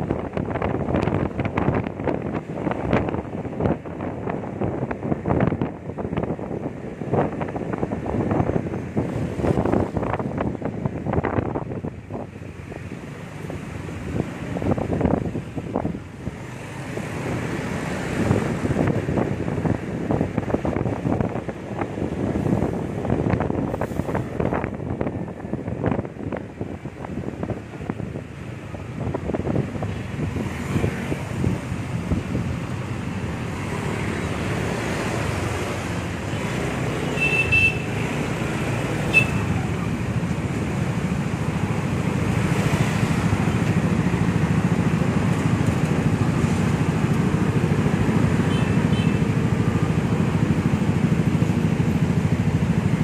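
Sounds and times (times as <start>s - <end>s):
wind buffeting microphone: 0.0s - 12.5s, 13.5s - 37.0s
road traffic: 0.0s - 53.0s.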